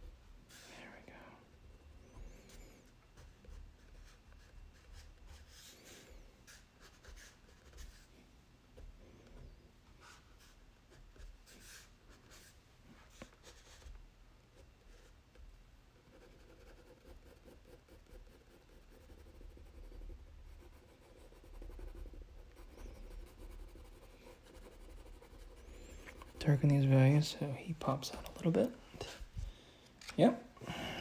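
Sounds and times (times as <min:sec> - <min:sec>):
crayon scratching on paper: 0:02.1 - 0:08.1, 0:16.0 - 0:26.9.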